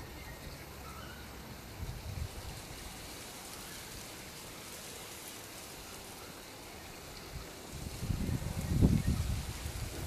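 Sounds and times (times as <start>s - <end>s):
wind buffeting microphone: 1.7s - 2.9s, 7.1s - 10.0s.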